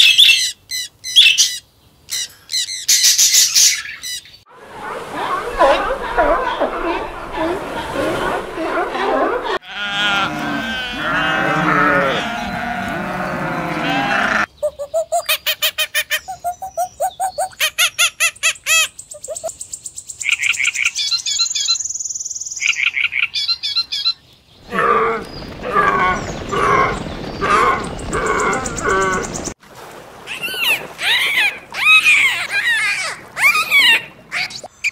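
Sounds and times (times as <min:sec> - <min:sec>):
animal calls: 0:04.7 - 0:15.3
sheep bleating: 0:09.6 - 0:14.5.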